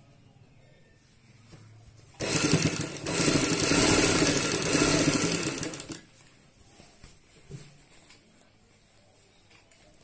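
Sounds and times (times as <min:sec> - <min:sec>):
sewing machine stitching: 0:02.2 - 0:06.1.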